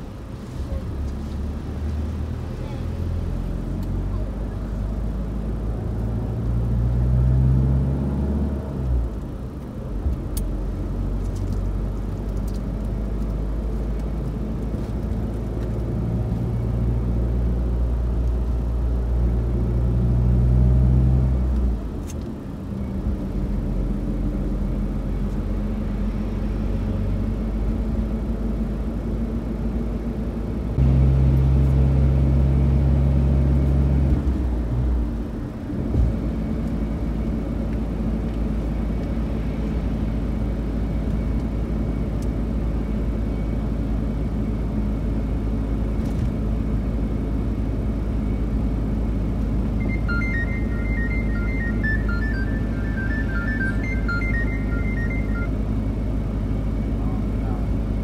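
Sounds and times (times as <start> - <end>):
car engine and road noise: 0.0 - 58.0.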